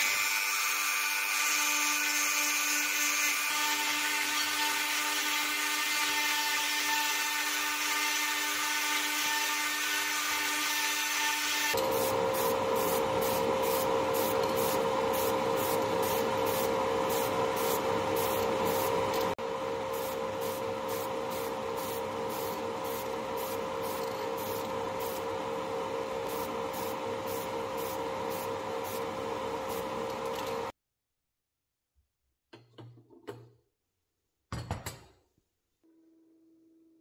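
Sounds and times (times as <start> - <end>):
sandblasting cabinet hum and hiss: 0.0 - 30.7
rotary tool grinding metal: 11.6 - 25.3.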